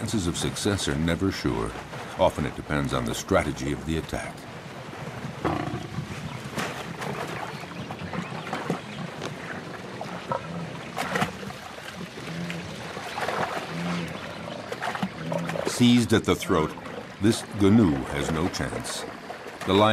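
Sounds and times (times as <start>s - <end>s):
knocks and splashes in water: 0.0s - 19.9s
lioness growling: 5.4s - 6.1s, 10.1s - 15.8s.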